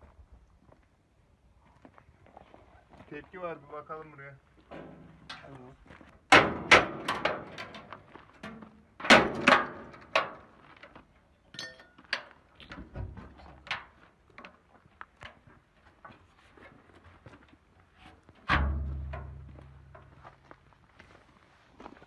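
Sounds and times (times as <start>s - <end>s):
metal panel knocks and clangs: 4.7s - 5.5s, 6.3s - 10.5s, 18.5s - 20.2s.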